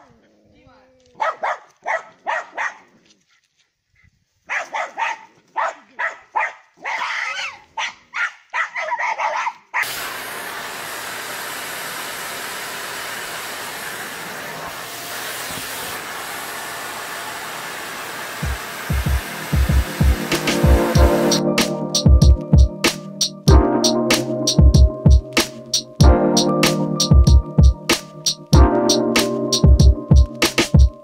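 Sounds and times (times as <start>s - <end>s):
dog barking: 1.2s - 2.9s, 4.5s - 9.9s
vacuum cleaner running: 9.8s - 21.9s.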